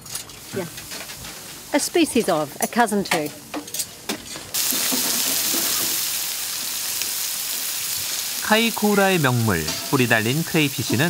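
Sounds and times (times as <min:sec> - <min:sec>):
crayfish sizzling on a grill: 0:00.1 - 0:11.0
woman's voice: 0:01.7 - 0:03.4.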